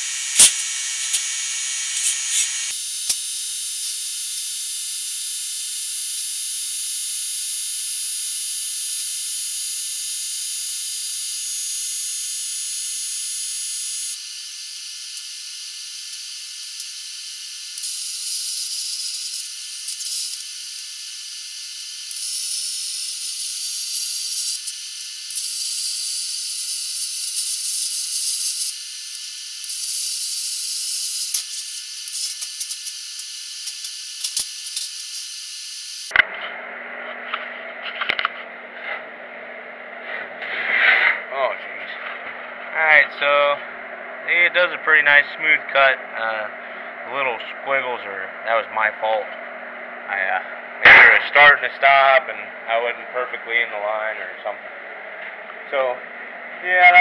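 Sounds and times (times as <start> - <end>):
plasma cutter hissing: 0.0 - 4.1, 14.2 - 36.1.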